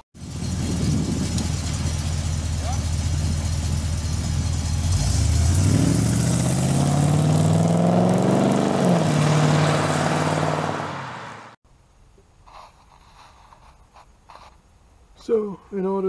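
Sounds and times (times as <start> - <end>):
car engine idling and revving: 0.2 - 11.6.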